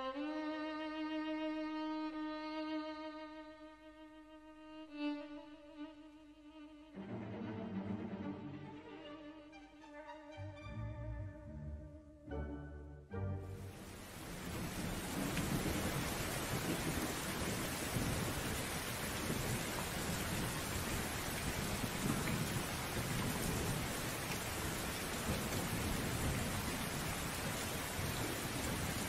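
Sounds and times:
heavy rain pouring: 13.5 - 29.0
thunder rumble: 13.9 - 29.0.

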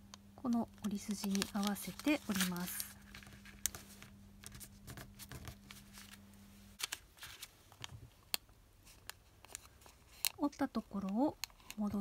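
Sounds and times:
paper rustling and creasing: 0.8 - 8.0.

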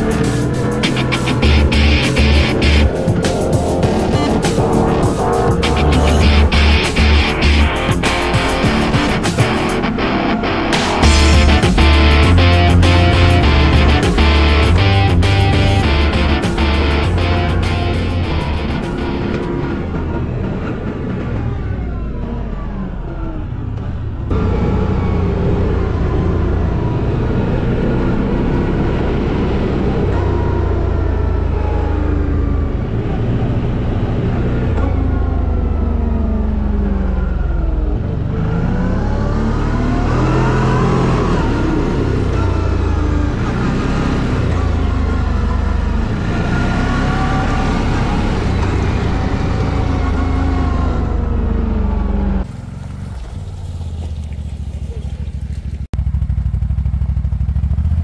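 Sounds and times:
atv engine revving: 23.6 - 58.0.

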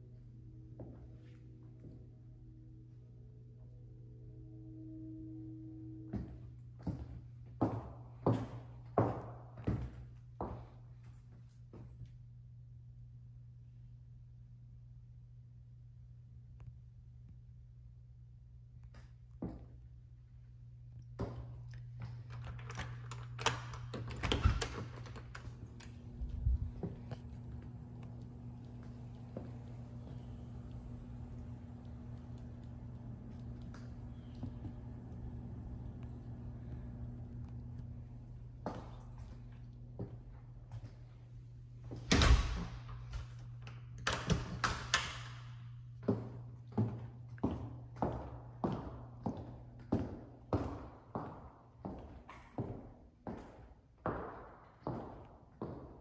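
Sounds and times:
steady low hum: 0.0 - 56.0
footsteps on tile floor: 6.1 - 11.9, 46.0 - 56.0
door unlocking and opening: 22.2 - 26.2, 42.1 - 45.4.

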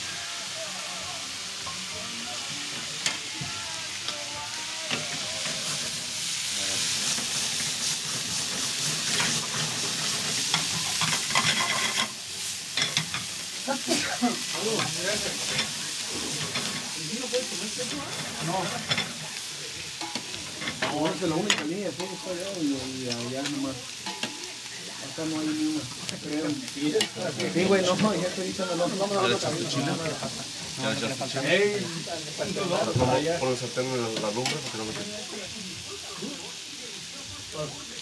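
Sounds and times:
food sizzling in skillets: 0.0 - 38.0
tongs scraping metal pans: 4.8 - 13.5, 14.1 - 19.3, 19.9 - 31.6, 32.4 - 35.1.

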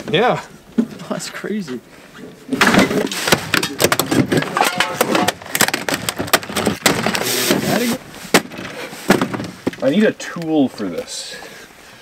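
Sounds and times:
plastic trim cracking and snapping: 2.7 - 7.2.

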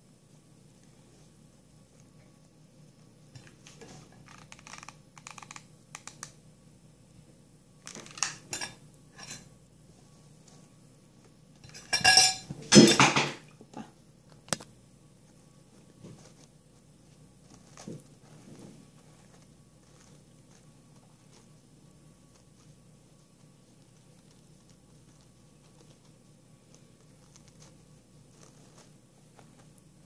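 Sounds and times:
rustling and ticking of petals: 15.2 - 30.0.

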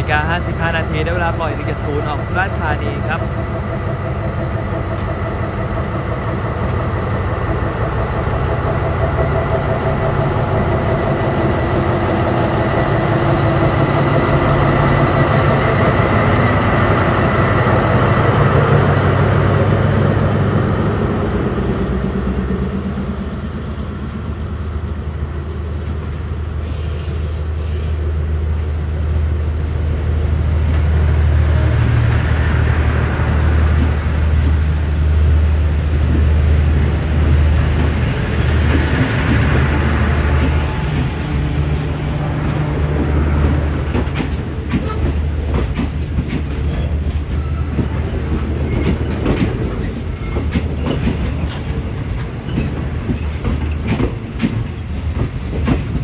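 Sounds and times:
locomotive idling drone: 0.0 - 25.8, 29.6 - 45.4.

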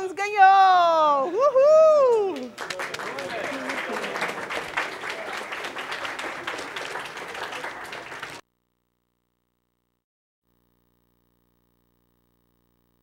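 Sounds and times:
audience applauding: 2.0 - 8.4.

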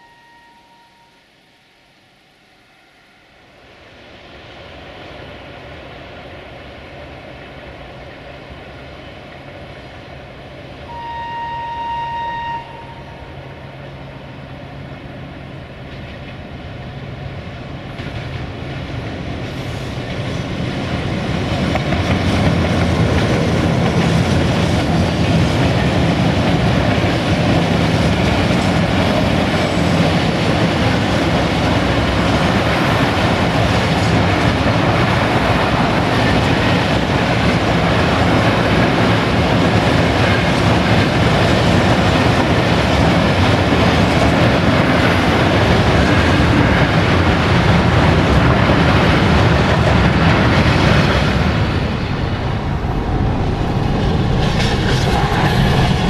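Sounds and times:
train horn blast: 0.0 - 1.4, 10.9 - 14.2
diesel locomotive engine: 0.0 - 56.0.

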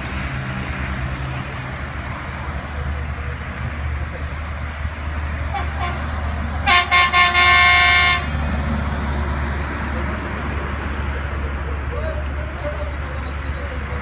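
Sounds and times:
train rumbling: 0.0 - 14.0
locomotive horn blasts: 5.5 - 6.0, 6.6 - 8.4.

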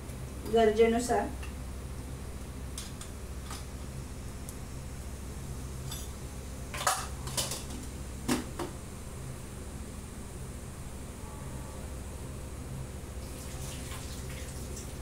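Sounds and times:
low hum: 8.9 - 13.4.

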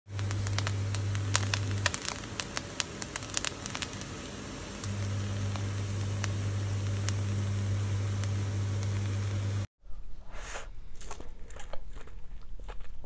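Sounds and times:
sharp crackles and clicks: 0.1 - 9.7
steady low hum: 0.1 - 13.0.

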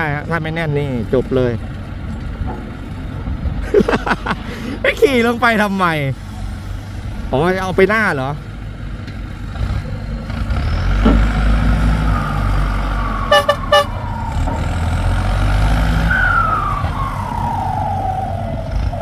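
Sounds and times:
tractor engine rumbling with whine: 0.0 - 19.0
short beeps: 13.3 - 13.9.

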